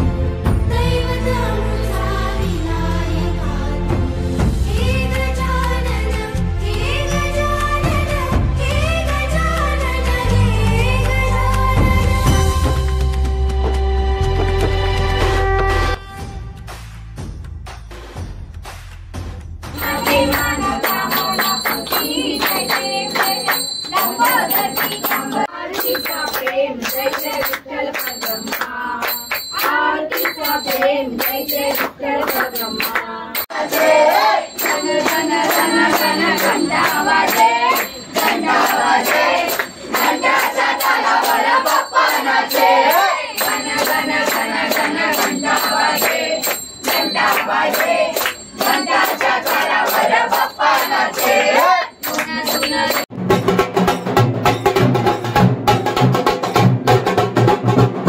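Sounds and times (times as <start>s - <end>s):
hands clapping a beat: 16.6s - 53.1s
devotional singing: 19.8s - 53.1s
bells ringing: 19.8s - 56.8s.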